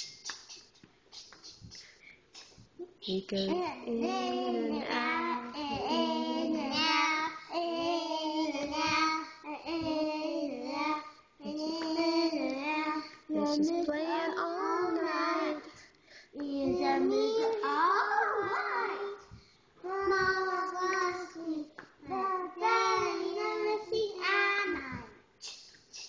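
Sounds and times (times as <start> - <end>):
young children singing: 0.0 - 25.3.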